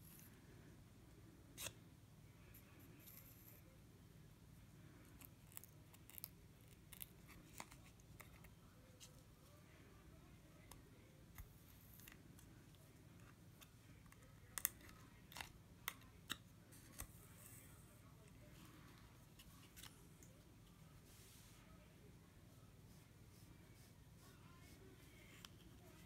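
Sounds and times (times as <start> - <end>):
faint room hiss: 0.0 - 26.0.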